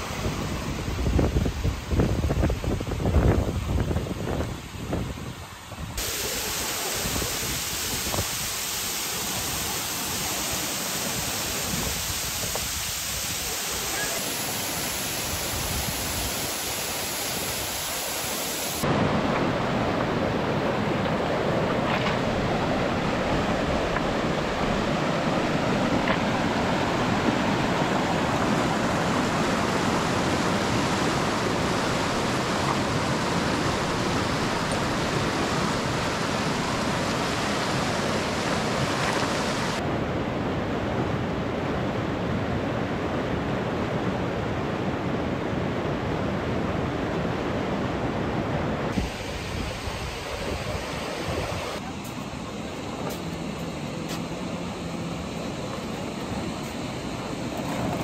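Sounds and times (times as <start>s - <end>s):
stream rushing over stones: 6.0s - 39.9s.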